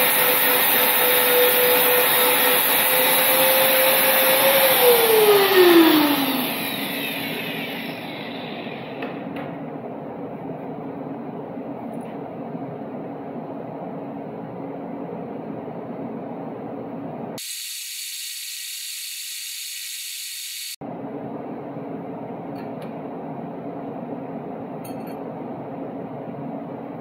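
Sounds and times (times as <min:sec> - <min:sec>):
workshop hum: 0:00.0 - 0:27.0
welding hiss: 0:17.4 - 0:20.8.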